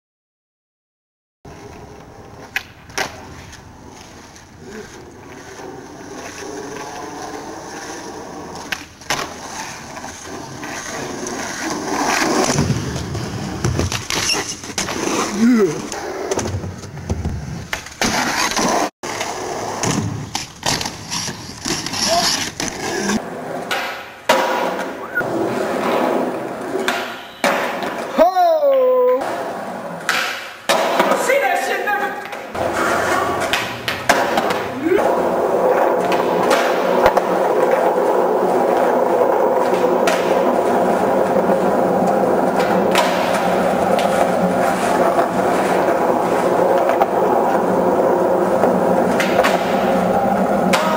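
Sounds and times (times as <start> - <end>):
skateboard wheels rolling on concrete: 1.5 - 50.9
skateboard clacks: 15.8 - 28.2, 29.2 - 31.4, 32.2 - 50.9.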